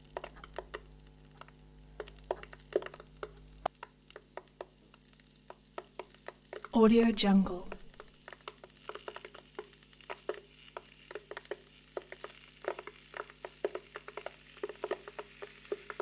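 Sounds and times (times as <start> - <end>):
faint steady hum: 0.0 - 16.0
kettle crackling and ticking: 0.0 - 16.0.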